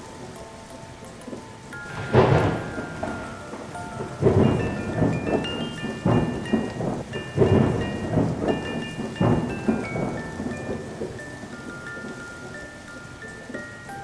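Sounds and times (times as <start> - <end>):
high bell-like notes: 1.8 - 14.0
heavy booming hits: 1.9 - 10.3.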